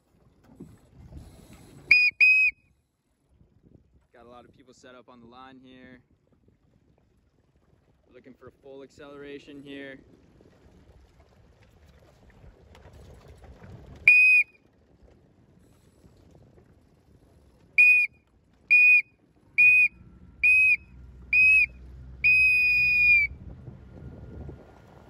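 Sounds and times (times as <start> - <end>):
race starting signal blasts: 1.9 - 2.5, 17.8 - 18.1, 18.7 - 19.0, 19.6 - 23.4.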